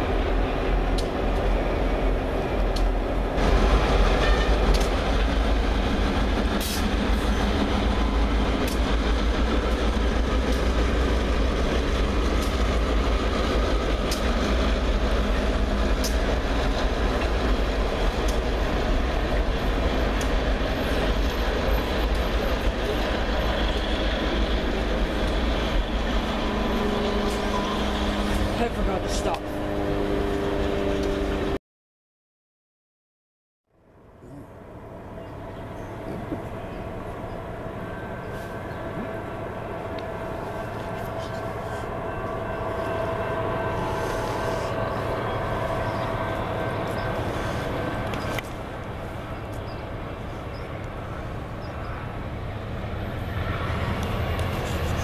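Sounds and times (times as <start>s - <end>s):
train wheels rumbling on rail: 0.0s - 31.6s, 34.2s - 55.0s
sharp rail clicks: 2.7s - 7.7s, 8.4s - 18.6s, 19.8s - 23.9s.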